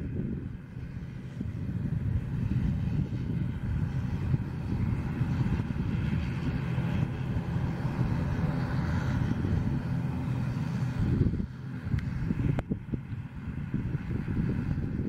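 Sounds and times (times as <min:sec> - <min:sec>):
faint engine whine: 0:00.0 - 0:15.0
jet engines rumbling: 0:00.0 - 0:15.0.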